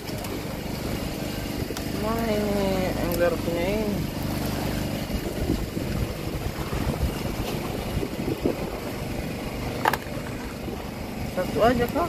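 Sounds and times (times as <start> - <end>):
boat engine running: 0.0 - 12.0
sea wash: 0.0 - 12.0
wind buffeting microphone: 0.0 - 12.0.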